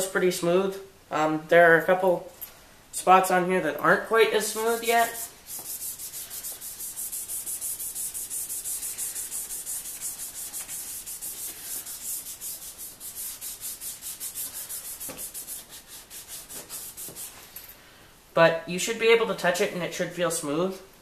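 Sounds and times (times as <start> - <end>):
wet sanding plastic lens: 4.5 - 17.4.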